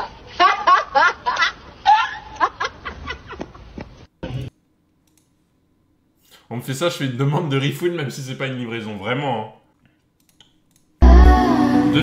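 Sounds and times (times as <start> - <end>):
person's voice: 11.0 - 12.0.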